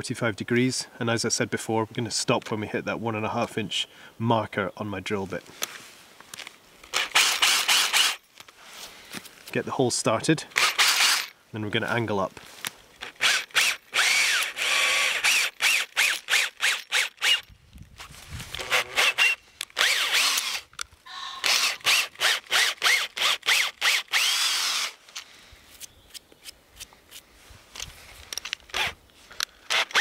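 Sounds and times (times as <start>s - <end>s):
cordless drill boring into wood: 6.9s - 8.2s, 10.6s - 11.3s, 13.0s - 17.4s, 18.5s - 20.7s, 21.3s - 25.0s, 28.7s - 29.0s, 29.6s - 30.0s.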